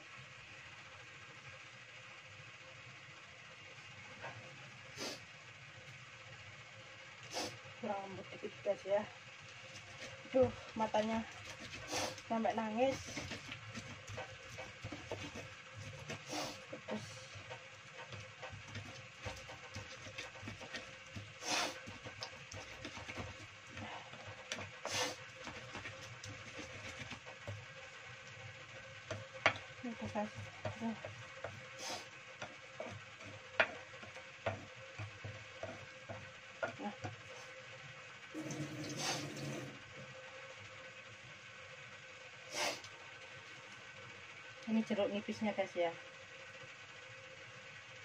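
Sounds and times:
stone pestle scraping paste: 9.8 - 27.8.

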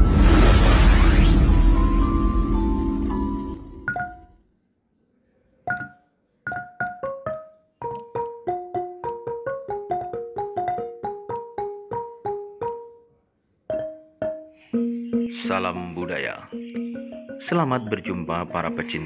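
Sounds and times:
slow keyboard melody: 1.5 - 4.3, 14.2 - 17.6.

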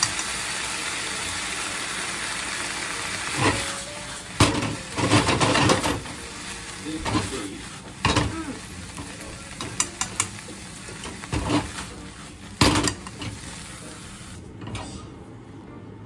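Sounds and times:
food sizzling in a pan: 0.0 - 14.6
chopsticks clacking against pan: 9.6 - 10.4.

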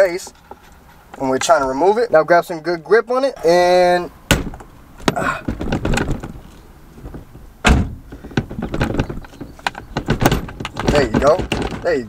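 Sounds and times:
steering wheel heavy thuds: 4.3 - 12.0.

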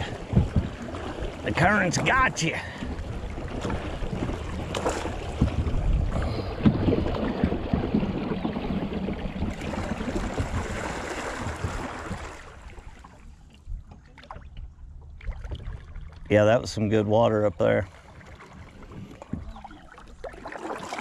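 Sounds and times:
knocks on boat: 0.0 - 12.7, 18.8 - 19.8.

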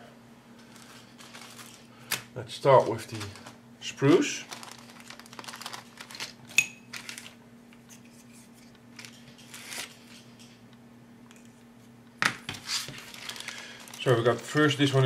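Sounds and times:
plastic bag crinkling: 0.7 - 2.1, 2.7 - 7.4, 12.7 - 15.0.

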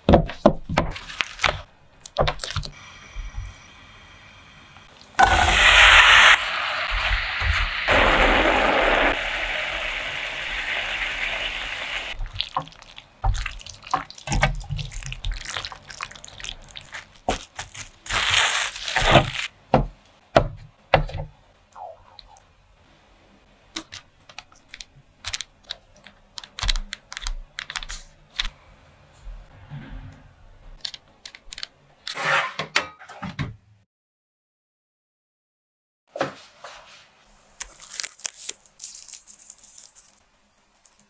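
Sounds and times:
fruit sizzling in a pan: 4.9 - 14.2
plastic cling film crinkling: 14.1 - 19.5, 37.6 - 41.0.

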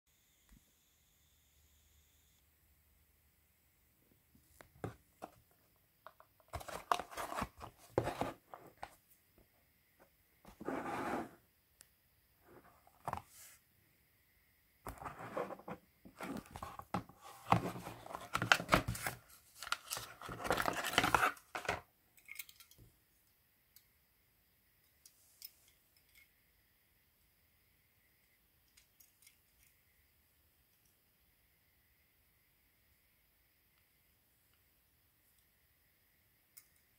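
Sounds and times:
cardboard and plastic ripping: 17.5 - 21.8.

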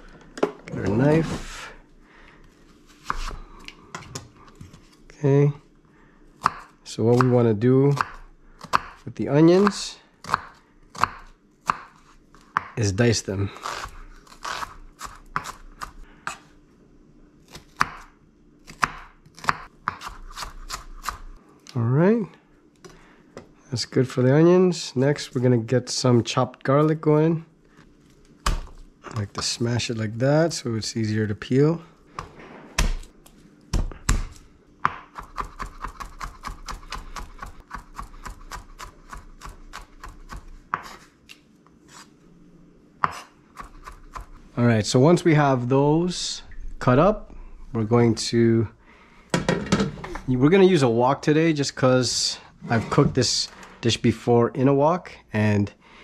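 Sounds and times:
knife chopping onion: 6.4 - 12.8, 13.6 - 16.4, 17.5 - 21.4, 32.2 - 33.1, 33.7 - 41.1, 43.0 - 44.4.

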